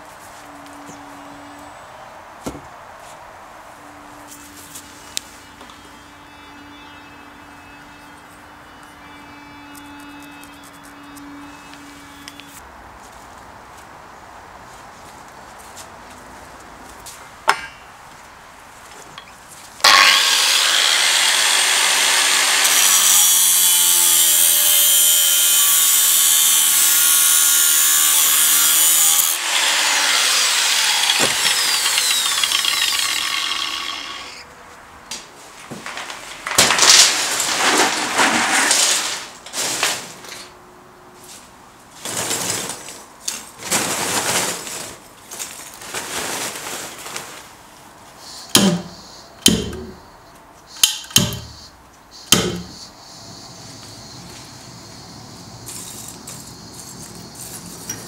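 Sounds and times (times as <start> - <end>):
angle grinder cutting steel: 19.8 - 34.4
charcoal pouring and rattling: 35.8 - 40.3, 43.6 - 47.5.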